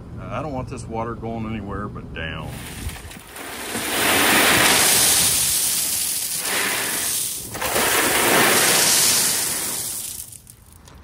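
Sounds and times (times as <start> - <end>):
rocks pouring rattle: 2.5 - 11.0.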